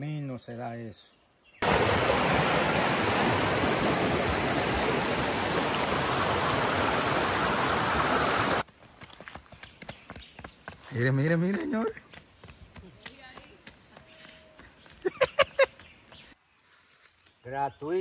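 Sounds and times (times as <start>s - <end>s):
stream rushing over rocks: 1.6s - 8.6s.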